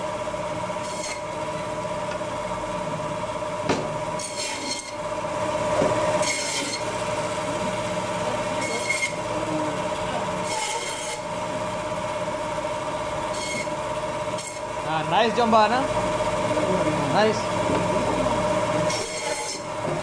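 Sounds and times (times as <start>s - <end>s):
band saw whining: 0.0s - 20.0s
saw blade rasping through meat: 0.8s - 1.4s, 4.2s - 5.0s, 6.2s - 7.0s, 8.6s - 9.3s, 10.4s - 11.4s, 13.3s - 13.8s, 14.4s - 14.7s, 18.8s - 20.0s.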